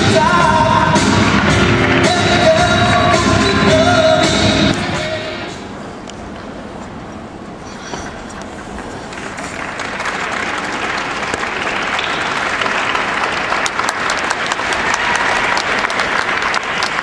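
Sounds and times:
audience applauding: 0:09.0 - 0:17.0.

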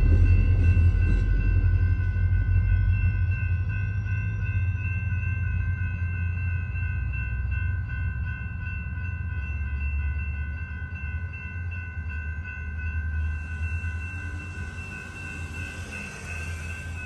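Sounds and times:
low rumble: 0:00.0 - 0:04.2
crossing bell ringing: 0:00.0 - 0:17.0.

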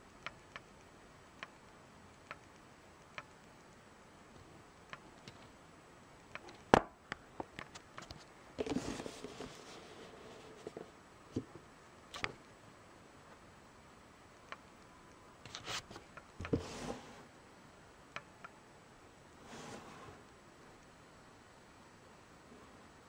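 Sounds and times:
small clicks and taps: 0:00.2 - 0:05.6.

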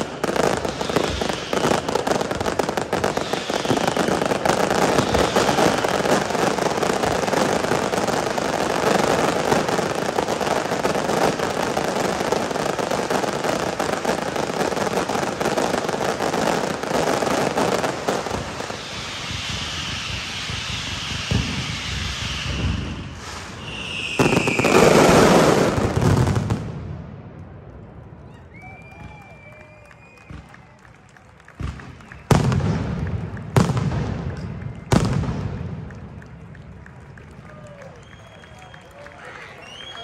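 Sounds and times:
falling firework whistles: 0:00.0 - 0:26.6, 0:28.3 - 0:30.8, 0:31.6 - 0:35.6, 0:37.4 - 0:40.0
fireworks crackling and banging: 0:00.0 - 0:40.0.

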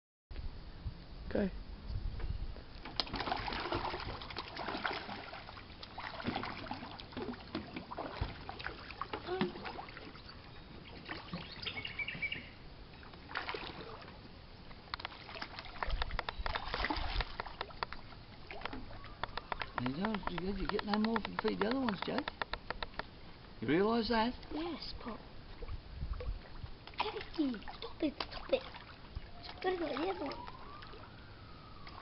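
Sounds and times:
fish splashing at water surface: 0:02.8 - 0:10.2, 0:15.0 - 0:23.1.

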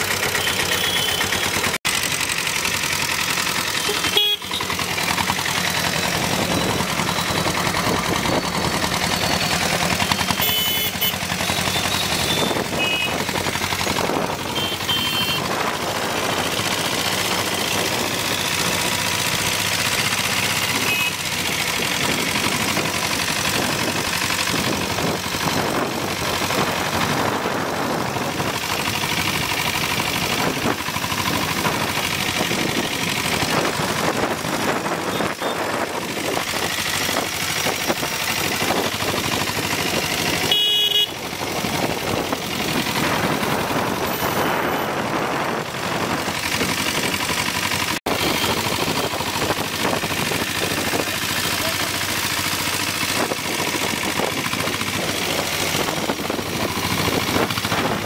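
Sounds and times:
diesel engine knocking: 0:00.0 - 0:58.0
traffic noise: 0:00.0 - 0:58.0
vehicle horn honking: 0:00.2 - 0:01.8, 0:03.7 - 0:04.8, 0:10.1 - 0:13.3, 0:14.4 - 0:16.6, 0:20.4 - 0:21.3, 0:35.1 - 0:35.7, 0:40.4 - 0:41.2.

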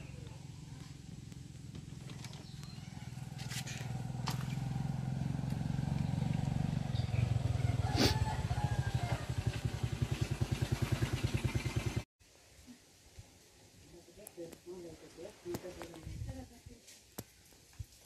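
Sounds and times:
motorcycle engine running: 0:00.0 - 0:12.1.

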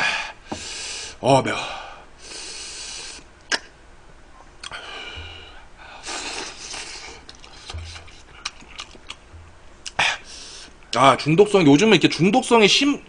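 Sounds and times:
man hissing breaths through mouth: 0:00.0 - 0:01.2, 0:02.2 - 0:03.3, 0:04.8 - 0:08.4, 0:10.0 - 0:10.8.

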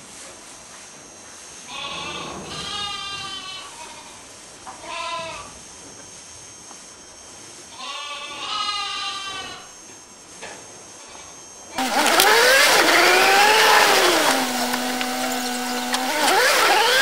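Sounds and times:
livestock bleating: 0:01.7 - 0:04.2, 0:04.8 - 0:05.5, 0:07.7 - 0:09.7.

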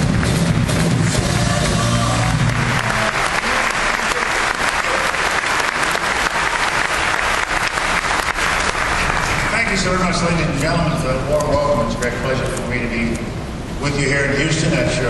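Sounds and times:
music: 0:00.0 - 0:02.8
audience applauding: 0:00.0 - 0:10.3.

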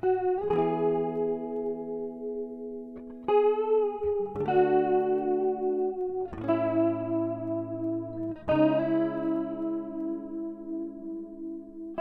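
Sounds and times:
guitar playing chords: 0:00.0 - 0:12.0.

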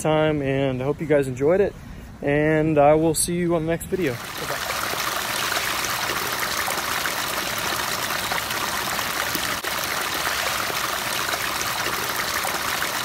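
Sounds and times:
water splashing over rocks: 0:04.1 - 0:13.0.

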